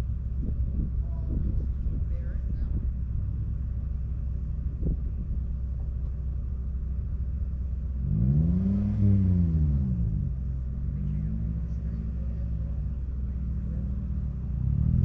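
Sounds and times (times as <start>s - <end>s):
rally car engine running: 0.0s - 15.0s.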